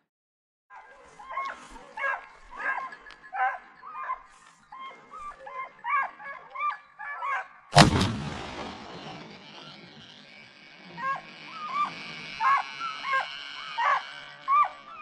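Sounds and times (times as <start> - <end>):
hounds baying: 0.7 - 15.0
rifle shot echoing: 7.8 - 9.6.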